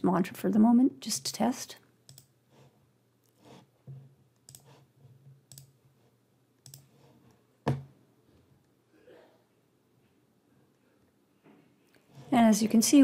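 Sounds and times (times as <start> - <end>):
computer mouse clicks: 2.1 - 2.3, 4.4 - 4.8, 5.5 - 5.8, 6.6 - 6.9.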